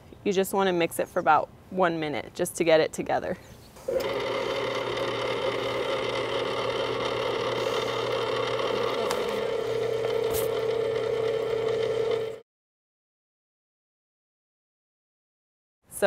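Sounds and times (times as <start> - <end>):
stand mixer whirring: 3.9 - 12.4.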